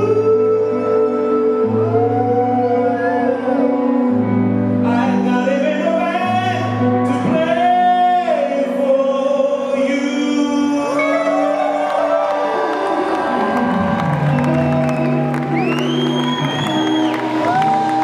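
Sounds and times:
live band with electric guitars: 0.0s - 9.0s, 10.9s - 18.0s
man singing: 0.0s - 12.4s.

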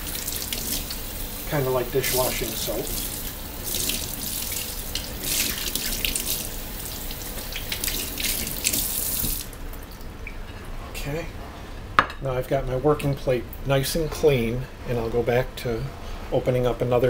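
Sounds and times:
glass plate being washed: 0.0s - 9.6s
tap water splashing into sink: 2.0s - 9.6s.

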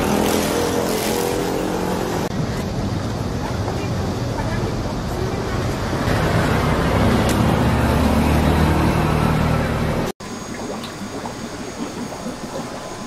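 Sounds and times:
street traffic noise: 0.0s - 10.2s
water trickling in aquarium: 10.2s - 13.0s.

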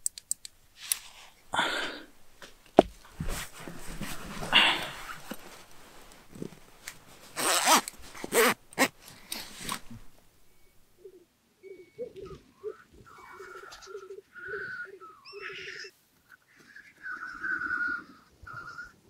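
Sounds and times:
grouse hissing calls: 12.0s - 19.0s.

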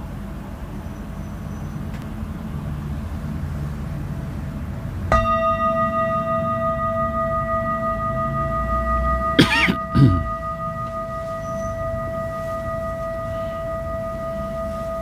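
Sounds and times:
low rumbling background: 0.0s - 15.0s
metal singing bowl ringing: 5.1s - 15.0s.

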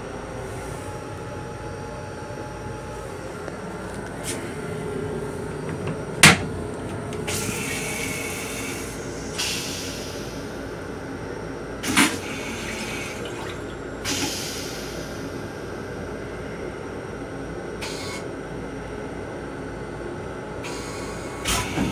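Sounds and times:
train rumble: 2.4s - 10.5s
toilet flush click: 11.8s - 14.4s, 21.4s - 21.9s
water rinsing toilet bowl: 11.9s - 14.3s.

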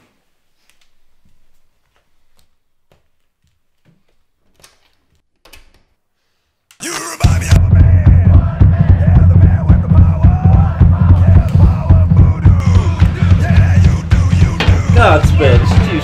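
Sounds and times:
loud music with heavy bass: 7.2s - 16.0s.

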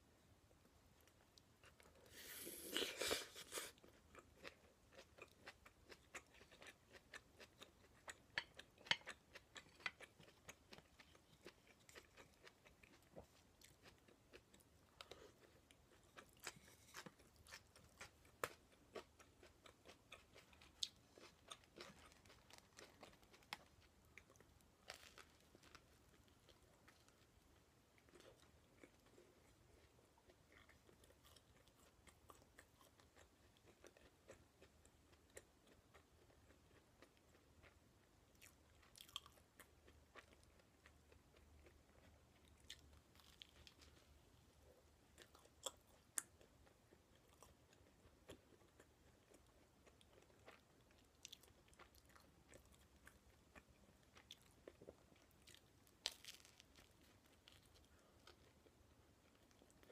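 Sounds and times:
chewing food crunches: 2.8s - 27.3s, 45.2s - 59.9s.

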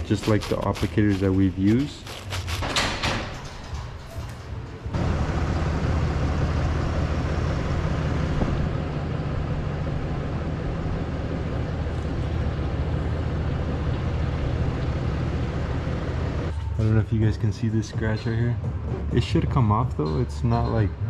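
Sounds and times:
truck engine running low speed: 4.6s - 21.0s.

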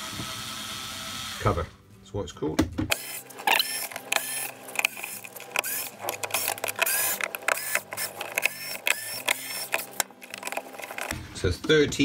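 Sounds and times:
electric screwdriver whirring: 2.9s - 11.2s
sharp clicks and knocks: 2.9s - 11.2s.

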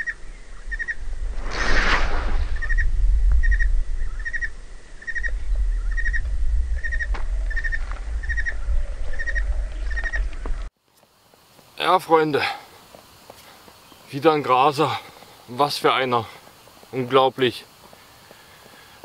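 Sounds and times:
wind rumble on microphone: 0.3s - 10.7s
fishing rod whoosh: 1.2s - 2.9s.

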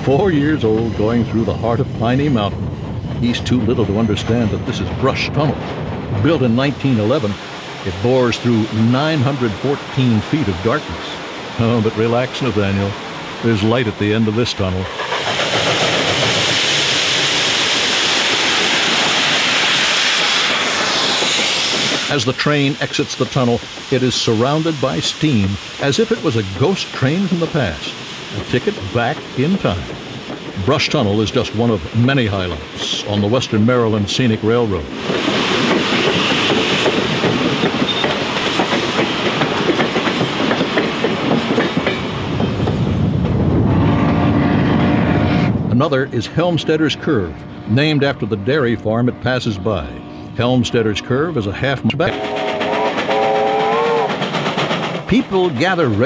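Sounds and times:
steam hissing: 0.0s - 5.2s, 6.3s - 43.0s, 52.1s - 56.0s
train wheels clicking on rails: 0.0s - 43.5s, 51.6s - 56.0s
steam locomotive passing: 0.0s - 56.0s.

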